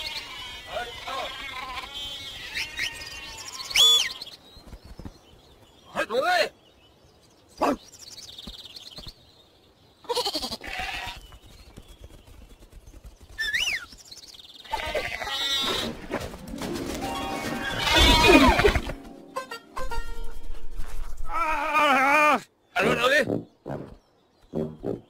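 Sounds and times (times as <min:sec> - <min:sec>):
background music: 0:16.0 - 0:21.1.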